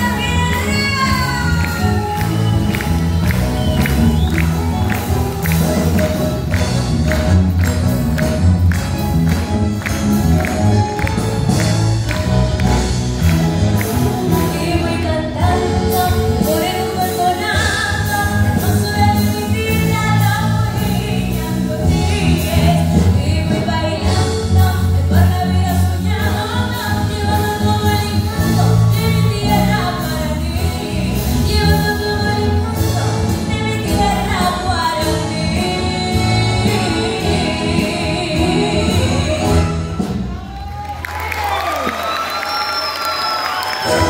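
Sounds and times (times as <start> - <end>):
woman singing: 0.0 - 3.4, 14.3 - 40.0
percussion beat: 0.0 - 14.6
orchestra playing: 0.0 - 41.7, 43.5 - 44.0.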